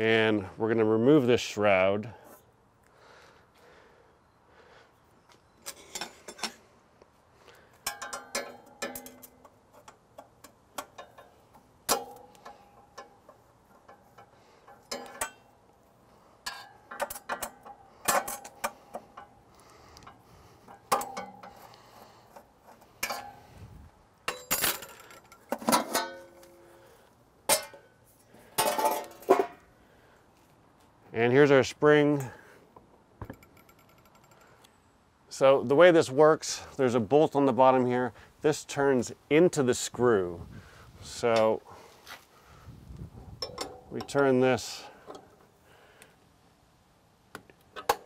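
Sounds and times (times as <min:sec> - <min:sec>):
metal clinks and clicks: 0:33.2 - 0:34.7.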